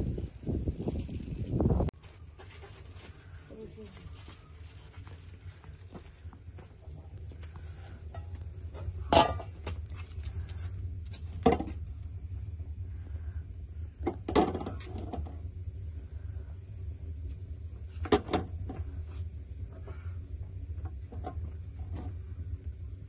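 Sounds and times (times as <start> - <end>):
steady low hum: 0.0 - 23.0
dishes and cookware clattering: 9.1 - 9.5.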